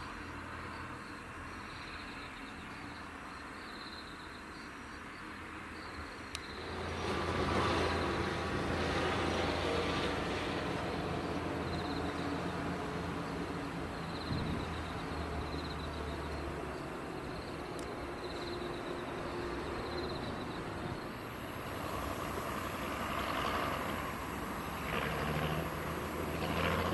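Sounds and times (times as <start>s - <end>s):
vehicles approaching on road: 4.5s - 26.9s
pulsing insect chirps: 11.0s - 26.9s.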